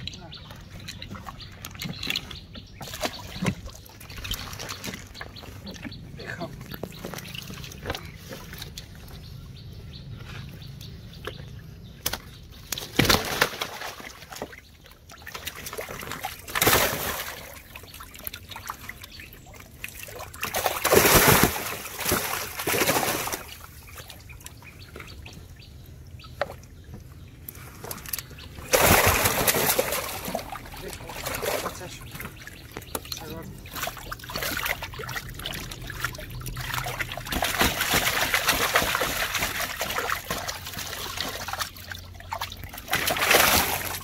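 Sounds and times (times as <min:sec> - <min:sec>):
water lapping: 0:00.0 - 0:44.0
fish tails slapping and splashing: 0:00.7 - 0:05.9, 0:12.0 - 0:25.3, 0:27.8 - 0:44.0.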